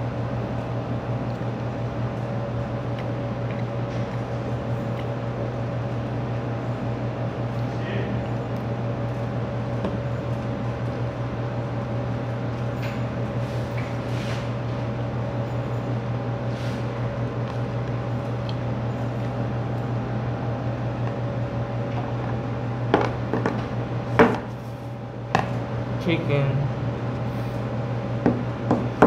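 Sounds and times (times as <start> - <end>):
air conditioner humming: 0.0 - 29.0.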